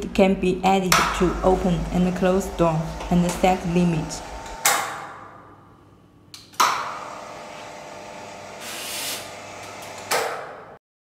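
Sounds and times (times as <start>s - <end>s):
roller shutter motor hum: 1.0s - 5.2s, 6.8s - 10.5s
shutter door clack: 9.6s - 10.6s.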